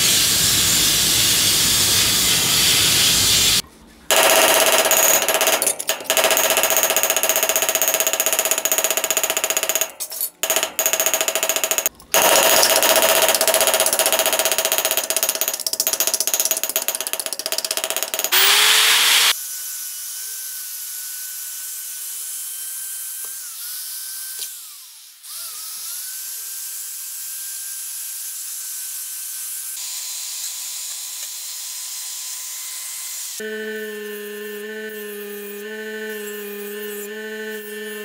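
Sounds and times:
electric drill sanding metal: 0:00.0 - 0:03.6, 0:18.3 - 0:38.0.

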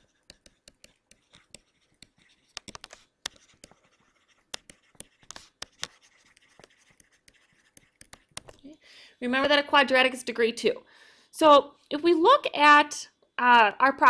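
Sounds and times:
stylus tapping on tablet: 0:00.0 - 0:08.6
stylus scratching: 0:00.0 - 0:08.8.

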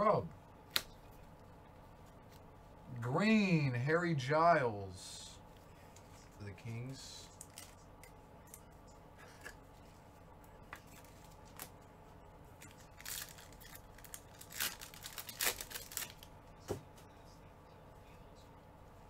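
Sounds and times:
foil wrapper crinkling and tearing: 0:12.6 - 0:16.3.

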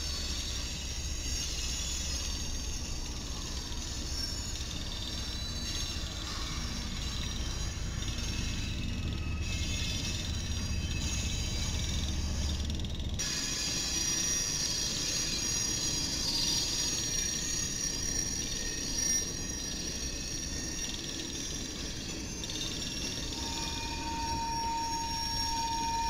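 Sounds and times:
high wheel squeal: 0:00.0 - 0:26.0.

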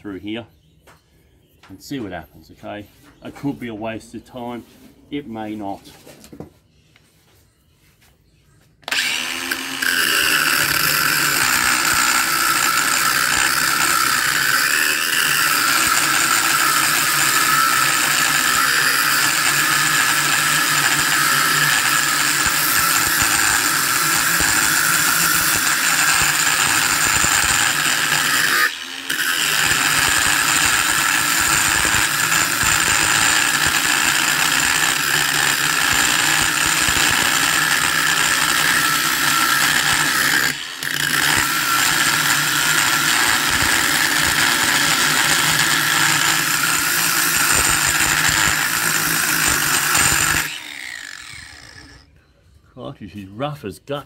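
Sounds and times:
angle grinder cutting metal: 0:08.8 - 0:52.0.

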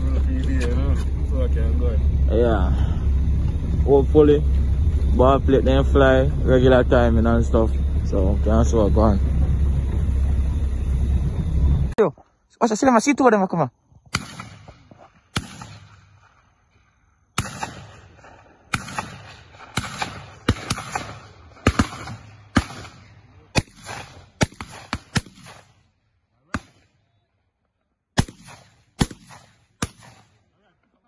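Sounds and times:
shotgun shots echoing: 0:14.1 - 0:16.5, 0:17.4 - 0:25.8, 0:26.5 - 0:27.0, 0:28.2 - 0:30.4.

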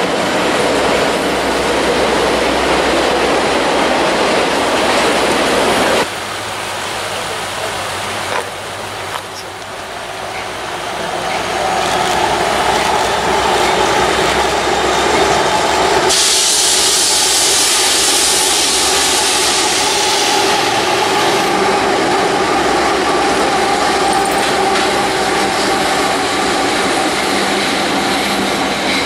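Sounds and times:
diesel locomotive engine drone: 0:00.0 - 0:29.0
loud hiss: 0:14.0 - 0:21.6.

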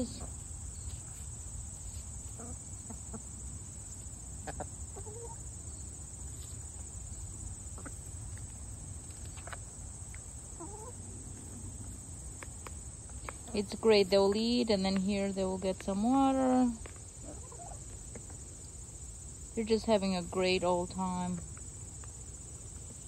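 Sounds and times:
cicadas buzzing: 0:00.0 - 0:23.0
hens clucking: 0:02.1 - 0:05.5, 0:07.6 - 0:08.5, 0:09.1 - 0:11.6, 0:17.2 - 0:18.4.

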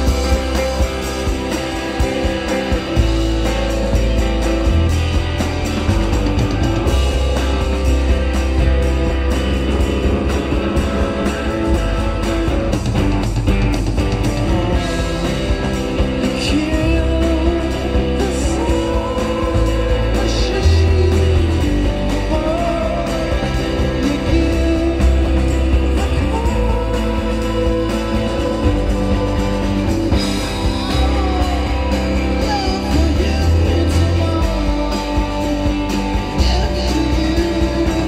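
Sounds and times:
rock band playing: 0:00.0 - 0:38.0
person singing: 0:14.5 - 0:38.0.

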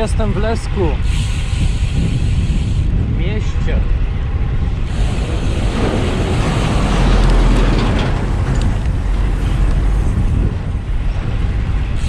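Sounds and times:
road traffic: 0:00.0 - 0:12.0
wind rumbling on microphone: 0:00.0 - 0:12.0
vehicle passing: 0:03.9 - 0:11.8.

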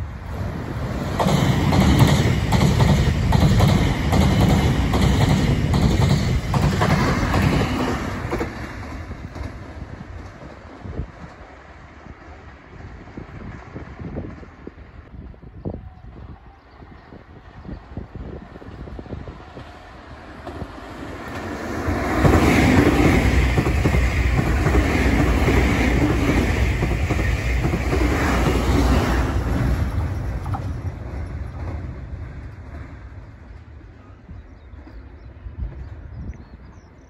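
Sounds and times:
electric train passing: 0:00.0 - 0:36.1
clattering train wheels: 0:01.0 - 0:11.5, 0:20.4 - 0:33.7.

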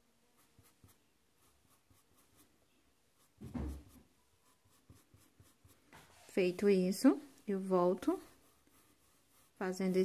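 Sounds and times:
paintbrush strokes on cloth: 0:00.2 - 0:10.0
thump: 0:03.4 - 0:04.0.

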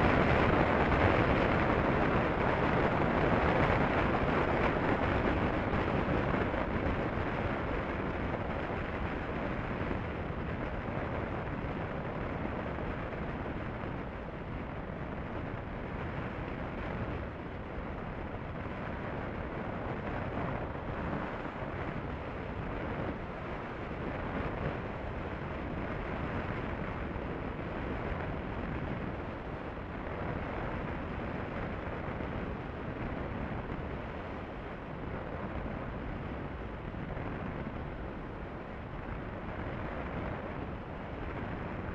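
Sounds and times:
wind rush on microphone: 0:00.0 - 0:41.9.

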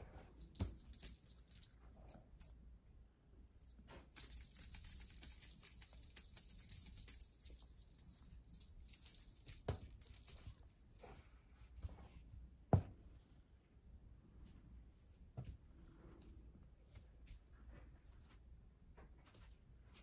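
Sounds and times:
small bell jingling: 0:00.0 - 0:02.7, 0:03.6 - 0:12.2.

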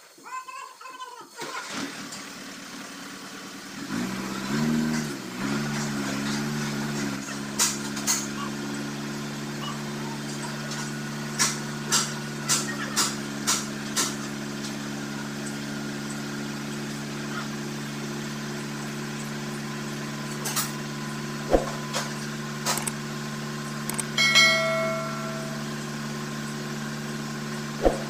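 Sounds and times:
engine idling hum: 0:02.2 - 0:28.0
sharp clicks: 0:22.7 - 0:23.0, 0:23.8 - 0:24.2
high-pitched tone: 0:24.0 - 0:26.0.

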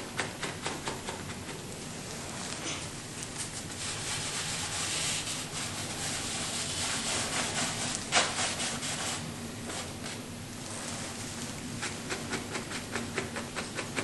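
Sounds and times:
paintbrush scrubbing on canvas: 0:03.4 - 0:14.0.

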